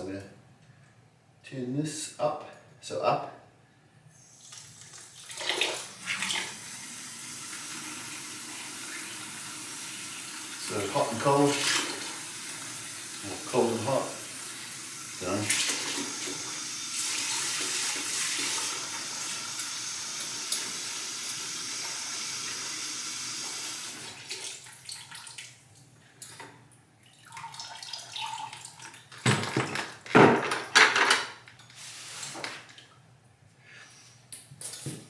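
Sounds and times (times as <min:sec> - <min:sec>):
water running into plastic bucket: 0:04.4 - 0:25.6, 0:27.0 - 0:29.2.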